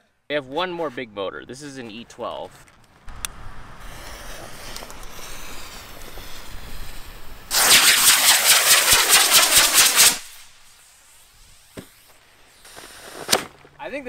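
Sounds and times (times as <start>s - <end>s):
rocket motor pulsing hiss: 3.1s - 13.4s.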